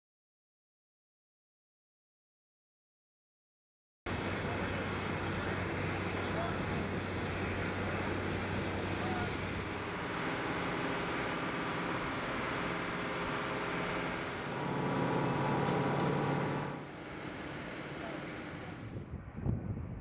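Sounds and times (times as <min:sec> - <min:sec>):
ground equipment engines humming: 0:04.1 - 0:19.1.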